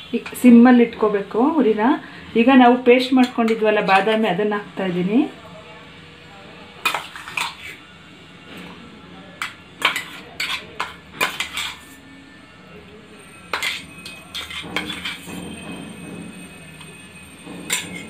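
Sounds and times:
metal spoon scraping a pot: 0.0s - 0.6s, 3.0s - 4.4s, 6.8s - 7.9s, 9.4s - 12.1s, 13.2s - 18.0s.

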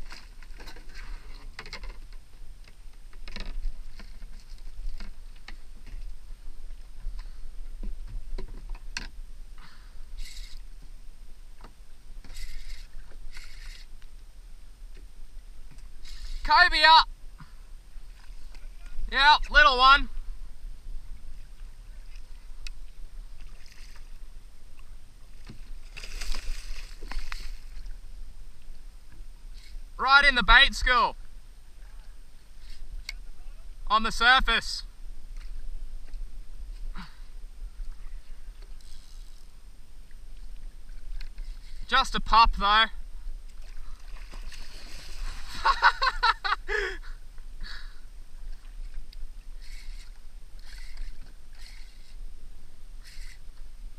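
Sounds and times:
low steady rumble: 0.0s - 16.5s, 17.1s - 53.9s
wind: 0.0s - 53.9s
water lapping: 19.7s - 29.9s, 43.4s - 47.2s
water splashing: 21.4s - 28.1s, 43.5s - 46.5s.

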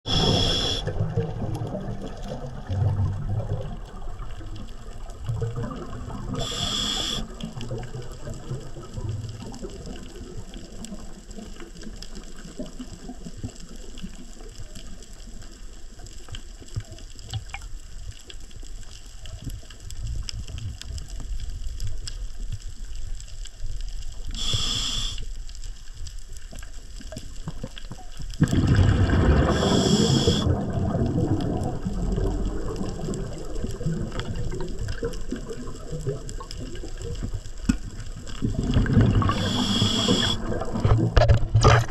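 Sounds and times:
regulator hissing inhalations: 0.1s - 0.9s, 6.4s - 7.3s, 24.3s - 25.3s, 29.5s - 30.5s, 39.3s - 40.5s
gurgling exhaled bubbles: 0.1s - 14.4s, 27.3s - 41.9s.

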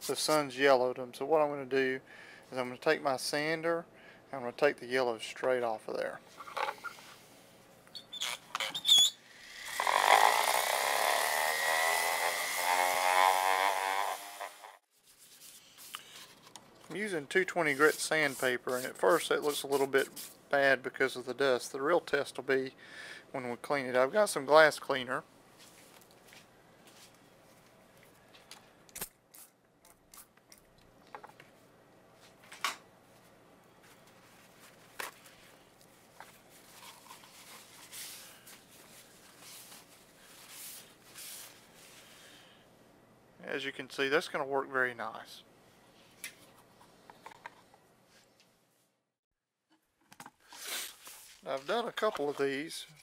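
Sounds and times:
electric sander whine: 9.8s - 14.8s.

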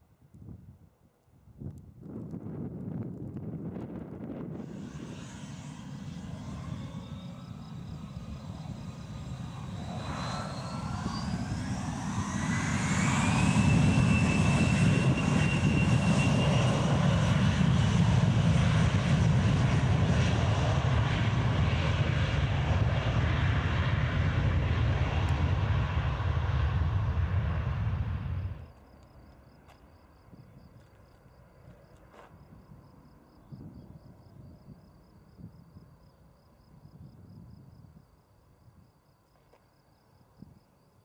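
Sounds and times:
jet roar: 3.4s - 28.7s
jet engines spooling up: 3.8s - 28.7s.

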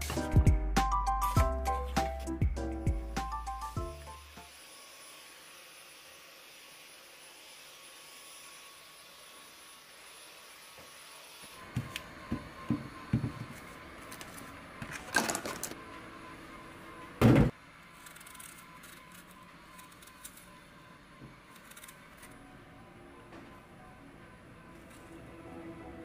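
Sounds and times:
objects knocking and clattering: 14.9s - 15.8s.

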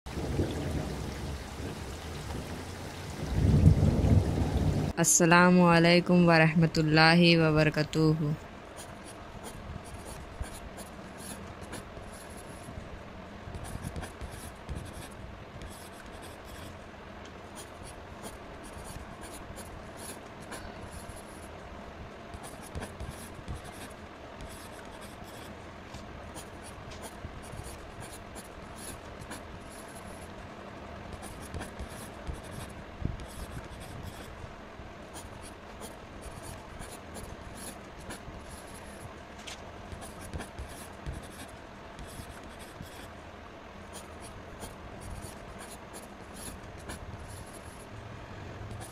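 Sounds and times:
pencil scratching on paper: 13.6s - 16.7s, 31.2s - 34.3s, 39.9s - 43.1s.

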